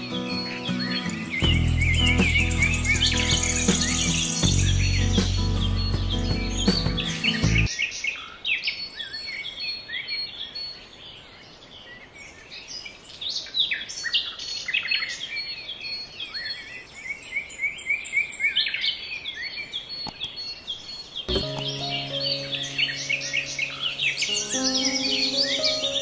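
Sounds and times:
music: 0:00.0 - 0:07.7, 0:21.3 - 0:26.0
small birds chirping: 0:00.0 - 0:26.0.

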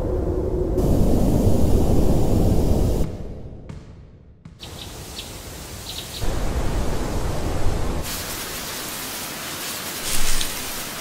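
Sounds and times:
steady rushing hiss: 0:00.8 - 0:03.1, 0:04.6 - 0:11.0.

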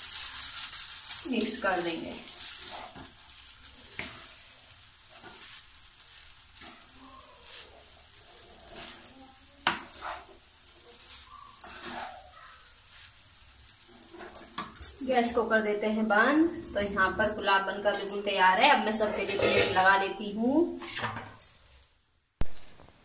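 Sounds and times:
faint steady sizzle: 0:00.0 - 0:23.0
wooden spatula scraping pan: 0:01.2 - 0:13.2, 0:18.8 - 0:20.1.

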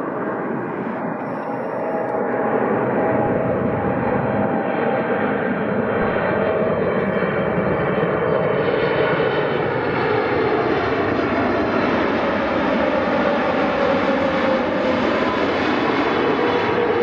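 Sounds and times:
faint whining tone: 0:00.0 - 0:08.5
jet engine roar: 0:00.0 - 0:17.0.

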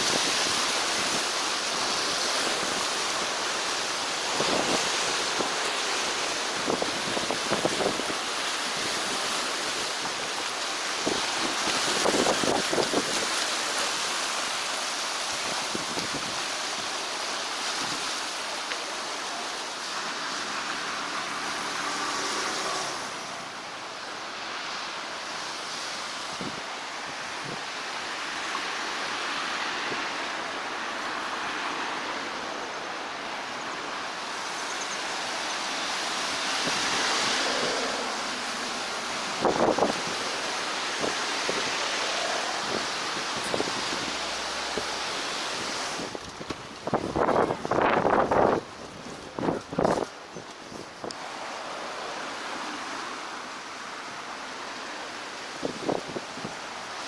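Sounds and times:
sea waves washing on rocks: 0:00.0 - 0:57.0.

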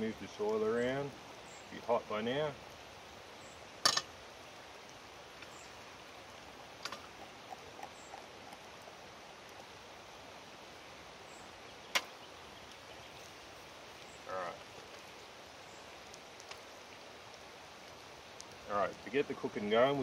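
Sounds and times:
steady faint hiss: 0:00.0 - 0:20.0
oil swirling in pan: 0:04.8 - 0:10.0.

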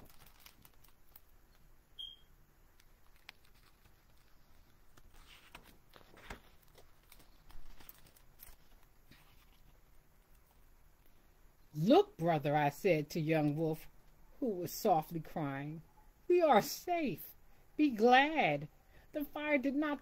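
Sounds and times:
book pages rustling: 0:00.0 - 0:01.7, 0:02.8 - 0:10.7
brief high squeak: 0:02.0 - 0:02.3.

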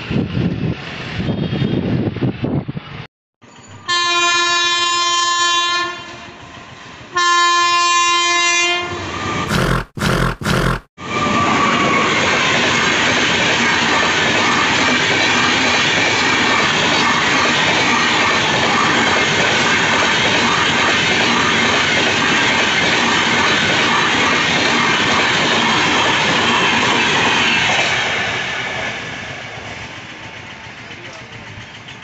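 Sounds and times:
train coaches rolling past: 0:11.0 - 0:32.0.

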